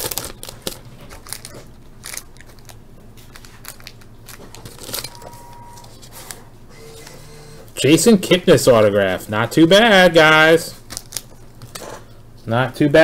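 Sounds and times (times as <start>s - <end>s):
foil wrapper crinkling: 0.0s - 5.2s, 10.7s - 12.0s.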